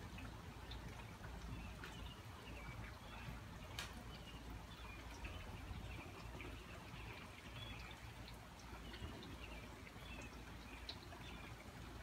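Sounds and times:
birds chirping: 0.1s - 12.0s.

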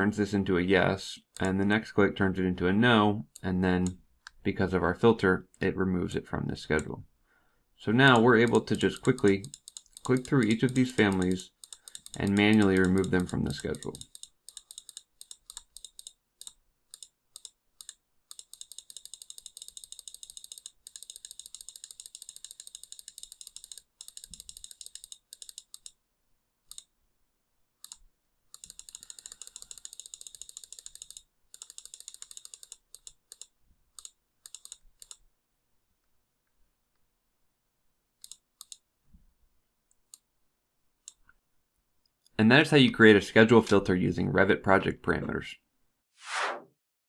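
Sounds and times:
computer mouse clicking: 8.1s - 26.0s, 26.7s - 26.9s, 27.8s - 35.2s, 38.2s - 38.9s.

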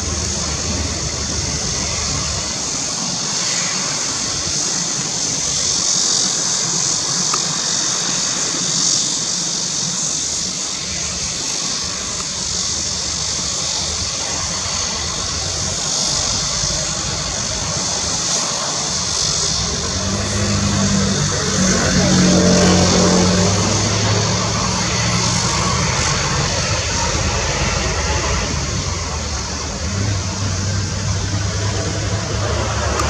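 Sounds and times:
jet engine running at low power: 0.0s - 33.0s.

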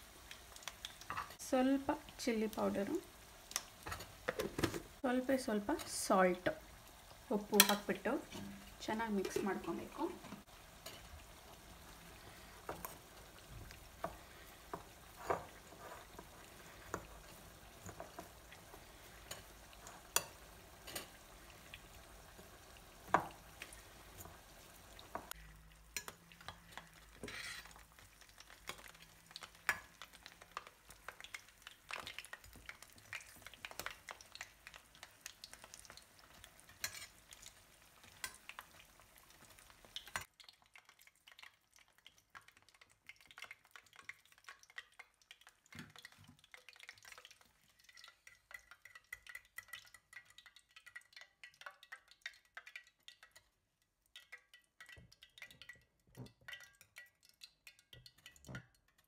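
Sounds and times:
fritters sizzling in hot oil: 0.0s - 59.0s
spoon stirring and clinking in bowl: 19.2s - 21.2s, 25.9s - 27.8s, 36.7s - 37.2s, 54.2s - 59.0s.

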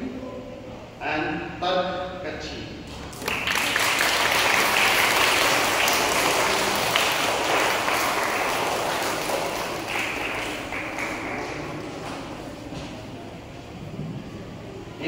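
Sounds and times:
audience clapping: 3.1s - 12.4s.

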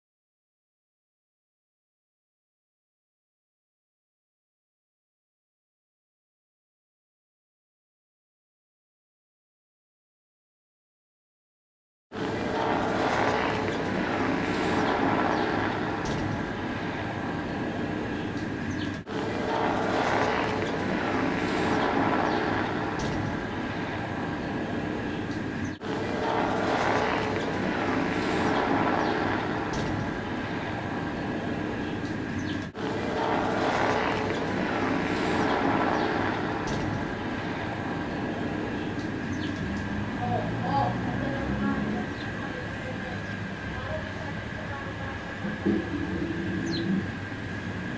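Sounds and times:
droning engine roar: 12.1s - 47.9s.

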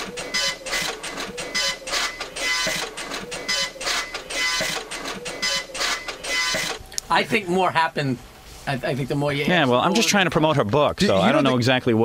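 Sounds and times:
printer head buzzing: 0.0s - 6.8s.

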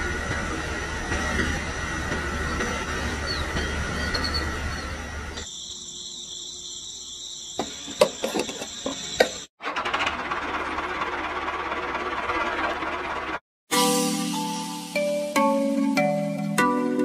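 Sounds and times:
insect chirring: 5.4s - 9.4s.

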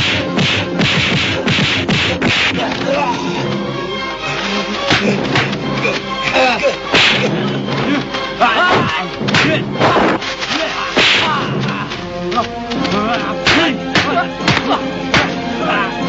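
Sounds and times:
punch and kick impacts: 0.0s - 2.6s, 6.9s - 7.3s, 11.0s - 11.8s, 13.4s - 15.4s
swishes of fast blows: 0.0s - 2.8s, 6.9s - 7.4s, 8.7s - 11.7s
background music: 0.0s - 16.0s.

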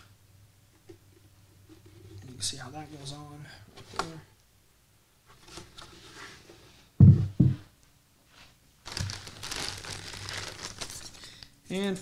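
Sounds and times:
tube thumping on table: 7.0s - 7.7s
plastic bag crinkling: 8.8s - 11.5s.

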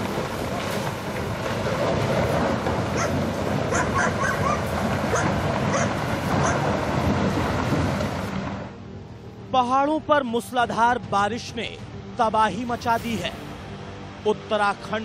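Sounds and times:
rock and debris sliding rumble: 0.0s - 8.7s
dog barking: 3.0s - 6.6s.

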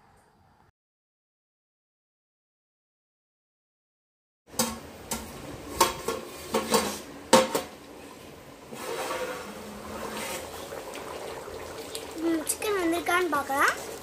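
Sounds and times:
pot lid and ladle clanging: 4.6s - 7.8s
food bubbling in pot: 4.8s - 14.0s.

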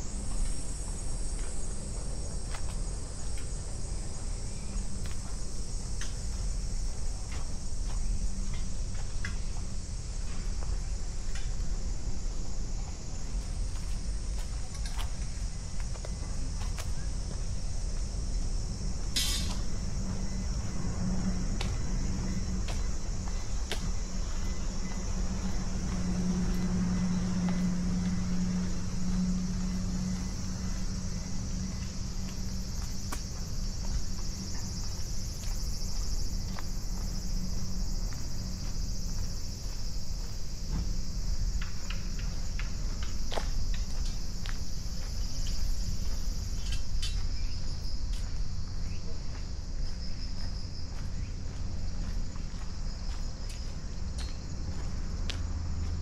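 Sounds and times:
low hum: 0.0s - 49.2s
short pulsed insect calls: 16.7s - 51.6s.

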